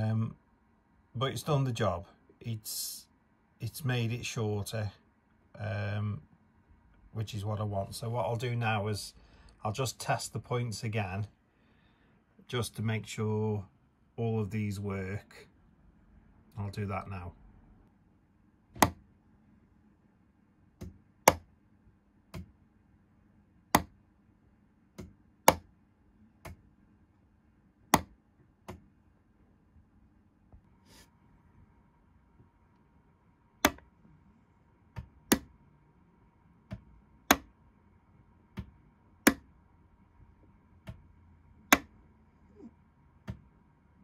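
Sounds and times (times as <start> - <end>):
faint steady hum: 0.0 - 44.0
solenoid motors snapping: 33.6 - 33.9.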